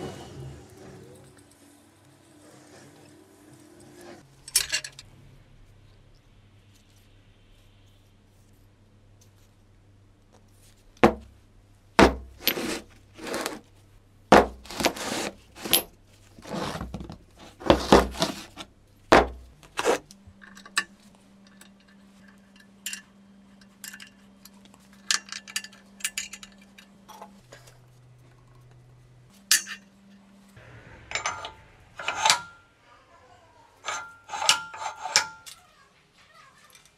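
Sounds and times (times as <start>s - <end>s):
steady low hum: 0.0s - 35.5s
metal clanking and clinking: 4.4s - 5.0s, 20.3s - 27.7s, 29.4s - 30.2s, 31.0s - 32.7s, 33.8s - 35.6s.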